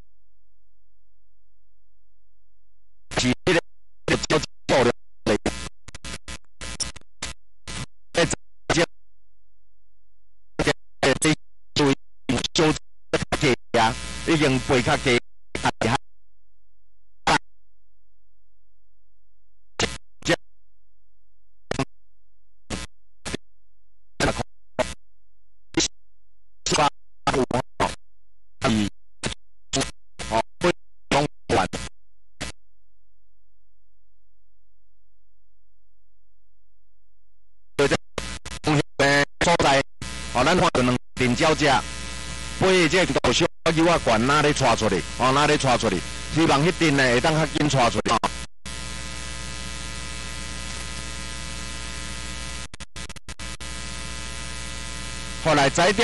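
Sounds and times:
chopped voice fragments: 0:03.1 - 0:08.9, 0:10.6 - 0:16.0, 0:19.8 - 0:20.4, 0:24.2 - 0:25.0, 0:26.7 - 0:28.0, 0:28.6 - 0:32.6, 0:37.8 - 0:41.9, 0:42.6 - 0:48.4, 0:55.4 - 0:56.0.

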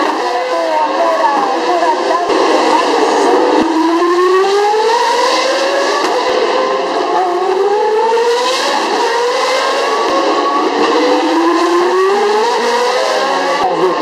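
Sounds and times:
race car engines at full throttle: 0:00.0 - 0:14.0.

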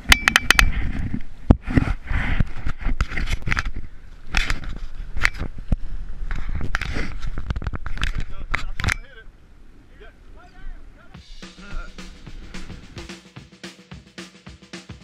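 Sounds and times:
wind rumble on microphone: 0:00.2 - 0:11.0.

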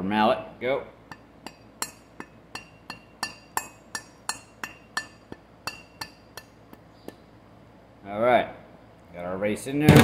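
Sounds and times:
rubber mallet tapping metal: 0:01.0 - 0:07.3.

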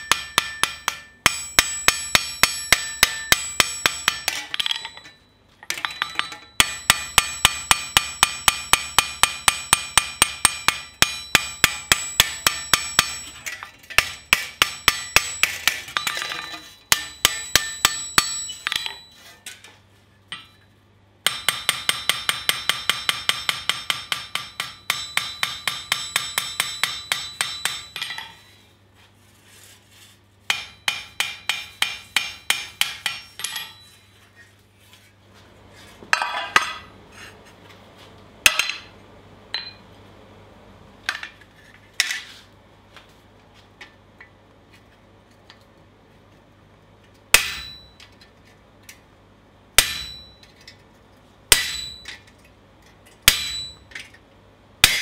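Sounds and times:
hammer ringing on steel blade: 0:00.0 - 0:19.3, 0:21.3 - 0:28.5, 0:30.5 - 0:34.0, 0:47.4 - 0:48.0, 0:49.8 - 0:50.5, 0:51.5 - 0:52.2, 0:53.3 - 0:53.9.

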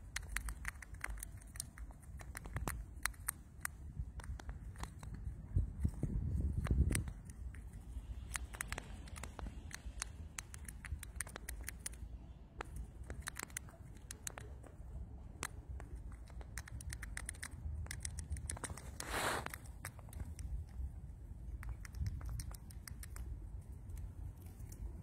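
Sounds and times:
mouse gnawing peanut shell: 0:00.0 - 0:25.0
rustle: 0:17.2 - 0:20.8.

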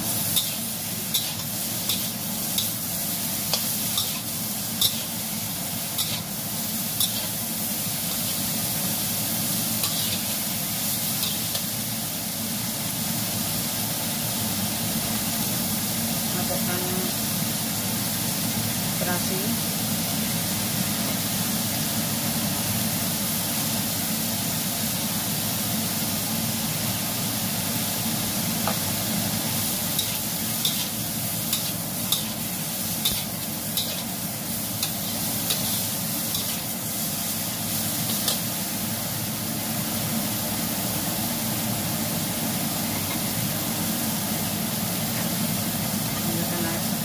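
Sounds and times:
food sizzling in a wok: 0:00.0 - 0:47.0
metal spatula scraping a wok: 0:00.3 - 0:02.8, 0:03.5 - 0:05.2, 0:06.0 - 0:06.3, 0:07.0 - 0:07.4, 0:09.8 - 0:10.4, 0:30.0 - 0:34.2, 0:34.8 - 0:36.7.

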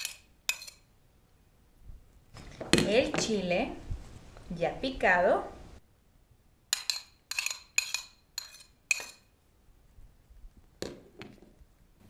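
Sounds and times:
metal spoon clinking on plate: 0:00.0 - 0:00.9, 0:06.7 - 0:09.3.

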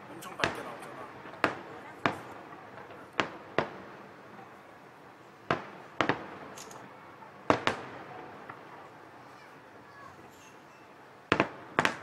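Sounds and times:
fireworks bursting: 0:00.0 - 0:09.4, 0:11.2 - 0:12.0.

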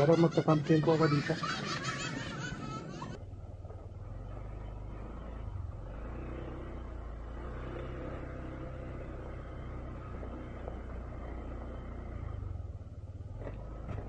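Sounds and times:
scooter engine running: 0:00.0 - 0:14.0.

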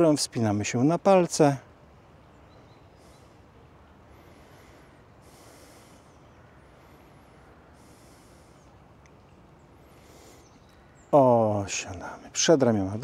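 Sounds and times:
breathing through the nose: 0:03.0 - 0:03.5, 0:04.1 - 0:08.8, 0:09.8 - 0:10.7.

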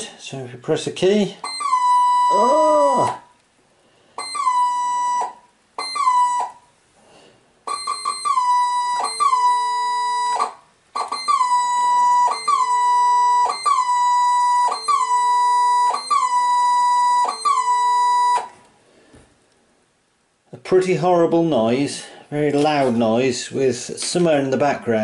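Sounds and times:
faint saxophone tone: 0:01.4 - 0:03.2
digital horn harsh squawk: 0:04.2 - 0:06.6, 0:07.7 - 0:18.2.

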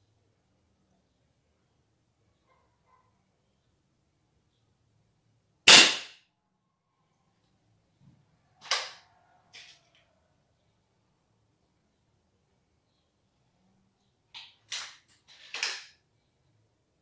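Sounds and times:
air rifle shot: 0:05.7 - 0:06.2.

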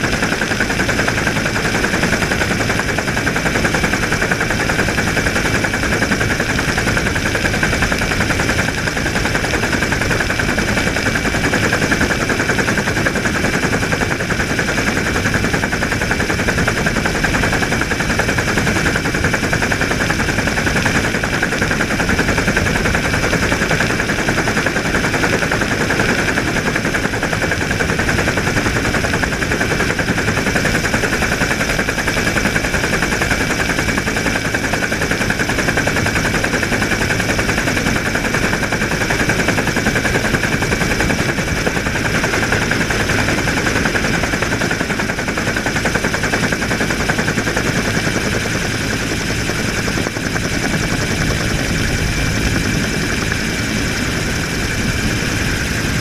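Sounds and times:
helicopter rotor chop: 0:00.0 - 0:56.0
high engine whine: 0:48.3 - 0:56.0.

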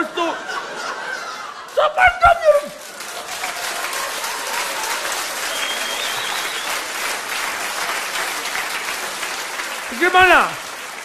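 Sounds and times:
audience laughter: 0:00.0 - 0:02.0
audience applauding: 0:01.3 - 0:11.0.

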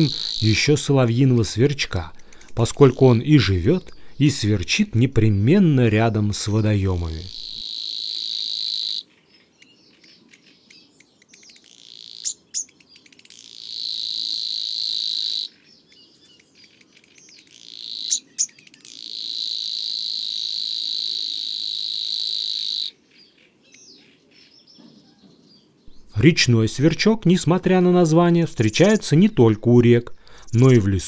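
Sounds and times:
bird buzzing reel song: 0:00.0 - 0:01.5, 0:06.5 - 0:24.7
bird ticks and sharp notes: 0:00.0 - 0:04.8, 0:06.4 - 0:20.5, 0:21.7 - 0:25.0.

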